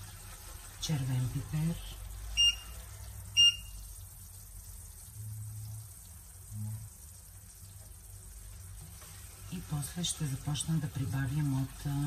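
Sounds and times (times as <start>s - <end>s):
faint frying in oil: 0.0s - 12.0s
high electronic beeps: 2.4s - 2.7s, 3.4s - 3.7s.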